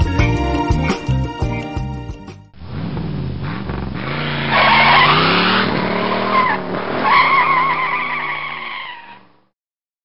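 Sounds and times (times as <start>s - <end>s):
car engine revving: 2.6s - 9.4s
tires screeching: 2.6s - 9.5s.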